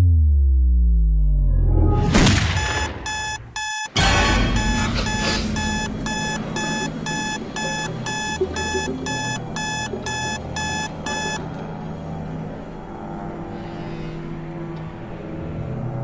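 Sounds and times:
electronic alarm beeping: 2.6s - 11.5s.

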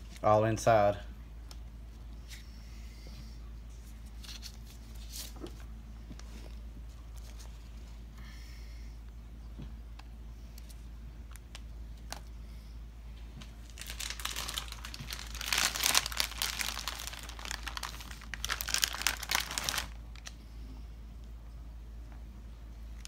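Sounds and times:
plastic packaging crinkling: 13.6s - 20.4s.

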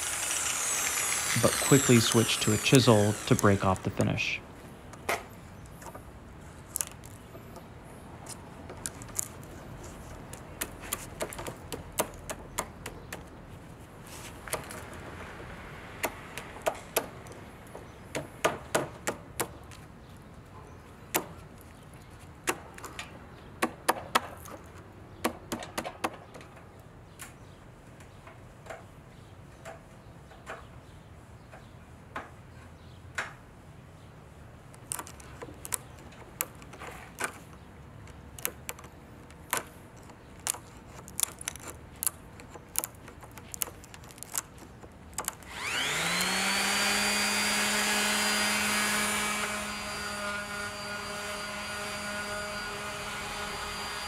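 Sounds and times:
chisel scraping wood: 38.1s - 46.5s.

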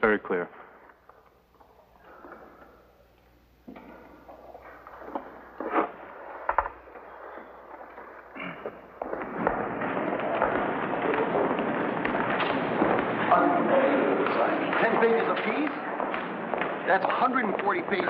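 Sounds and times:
crowd walking and talking: 8.4s - 18.0s.

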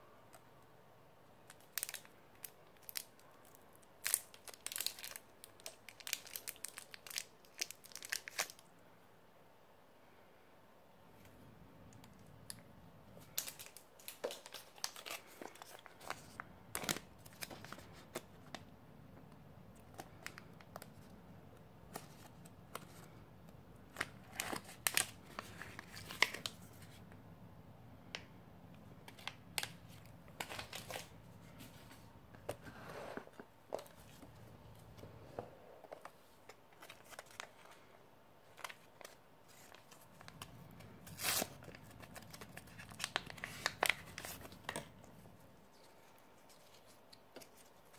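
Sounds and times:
wrappers crinkling: 1.5s - 8.6s, 13.2s - 18.5s, 38.5s - 44.9s.

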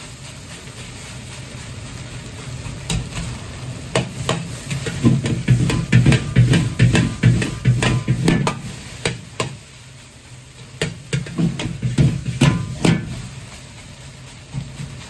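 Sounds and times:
gas burner rumble: 0.0s - 15.0s.

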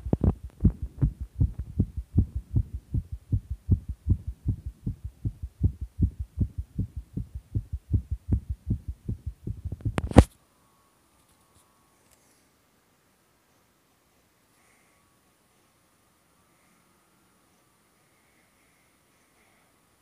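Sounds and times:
fast heartbeat thumps: 0.0s - 10.3s.

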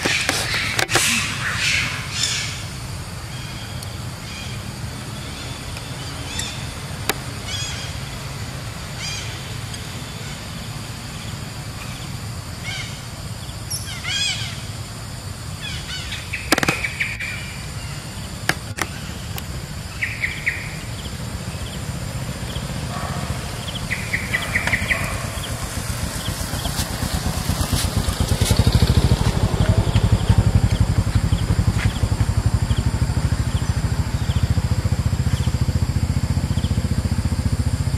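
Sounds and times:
sharp clicks: 0.0s - 1.3s
high-pitched animal calls: 0.0s - 2.7s, 22.3s - 26.8s
chirpy trills: 15.7s - 26.7s
low rumble: 16.9s - 37.9s.

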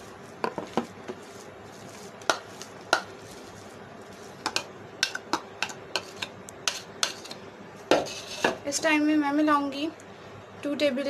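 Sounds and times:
metal spoon tapping bowls: 2.3s - 3.1s, 4.4s - 7.4s.

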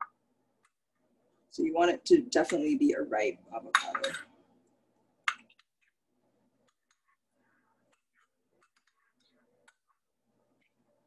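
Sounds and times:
spoon knocking: 3.7s - 4.3s.

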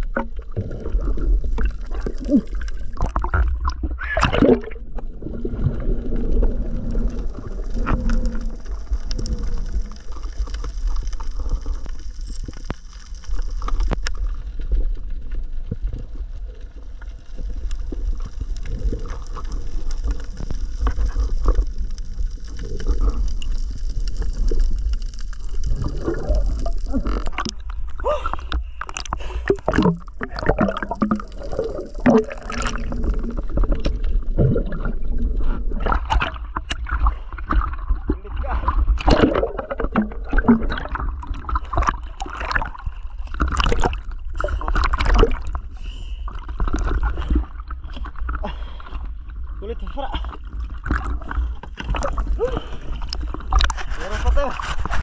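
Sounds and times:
low underwater rumble: 0.0s - 55.0s
water splashes and knocks: 25.8s - 35.0s, 35.8s - 45.6s, 50.2s - 55.0s.

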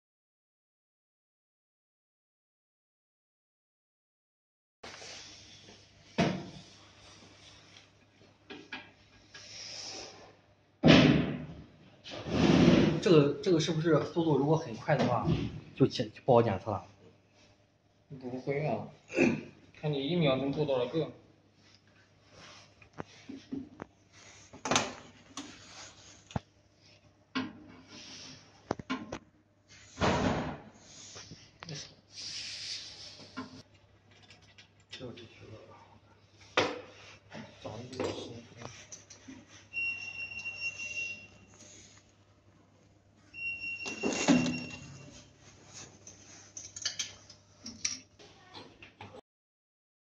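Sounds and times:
high electronic beep: 39.8s - 41.3s, 43.4s - 45.1s.

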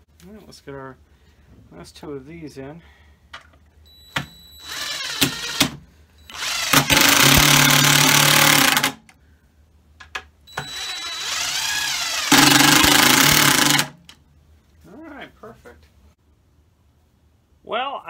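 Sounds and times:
impact driver driving screws into wood: 4.6s - 9.0s, 10.6s - 14.0s.

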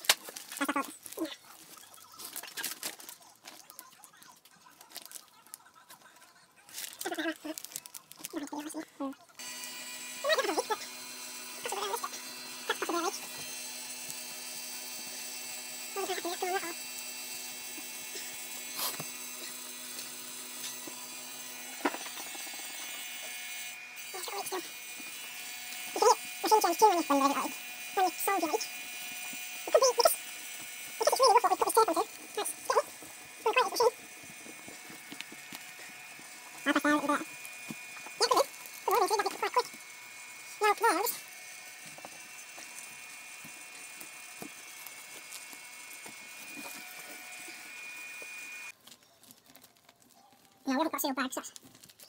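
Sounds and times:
plastic film crinkling: 0.0s - 9.3s, 28.6s - 40.0s, 41.8s - 52.0s
vacuum pump humming: 9.4s - 48.8s.

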